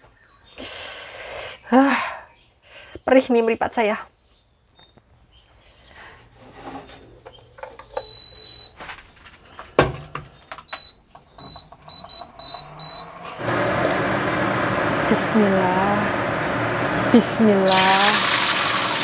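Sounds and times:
induction cooker beeping: 8.0s - 8.7s, 10.7s - 15.1s, 15.7s - 19.0s.

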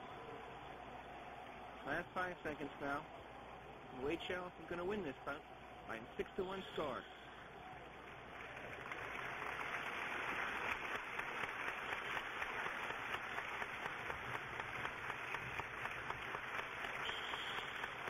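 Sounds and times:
audience applauding: 7.5s - 18.0s.

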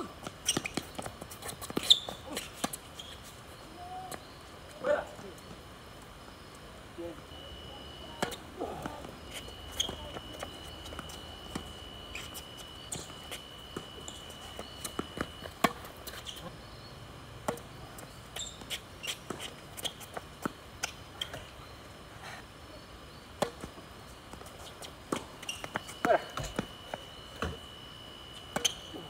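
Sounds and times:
tennis ball bouncing: 14.8s - 16.2s, 17.4s - 17.6s, 23.4s - 24.5s.

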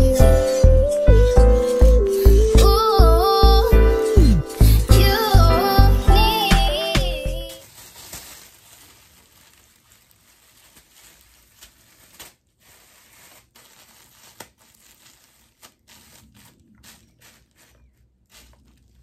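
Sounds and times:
plastic cap crinkling: 7.5s - 19.0s.

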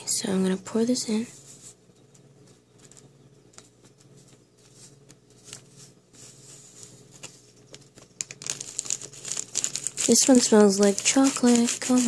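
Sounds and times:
faint steady hum: 0.0s - 12.0s
foil packet rustling: 6.3s - 12.0s.

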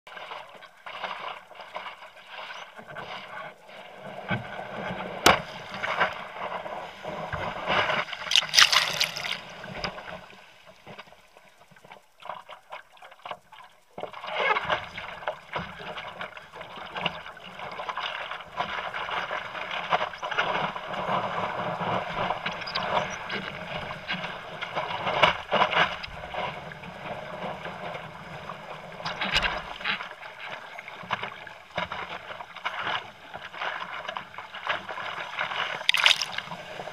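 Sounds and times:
water splashing against surfboard: 4.2s - 10.4s, 14.4s - 36.9s
breaking surf: 5.0s - 10.3s, 35.6s - 36.9s.

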